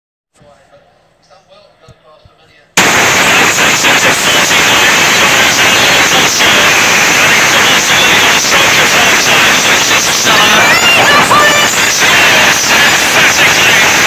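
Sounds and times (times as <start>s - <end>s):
static hiss: 2.8s - 14.0s.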